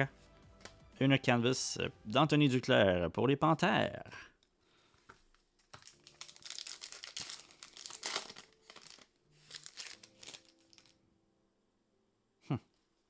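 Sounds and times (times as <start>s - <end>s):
card pack wrapper tearing and crinkling: 5.6s - 11.0s.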